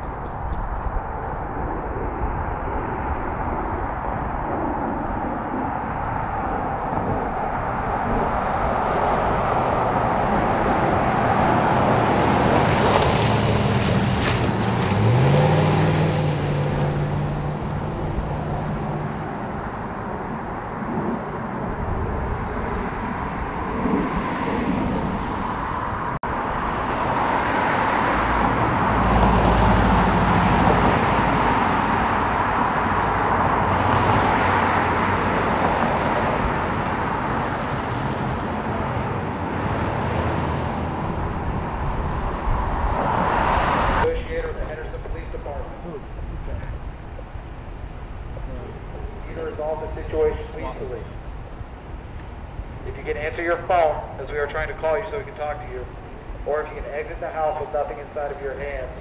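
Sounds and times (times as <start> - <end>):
road traffic: 0.0 - 59.0
car engine accelerating: 6.9 - 46.8.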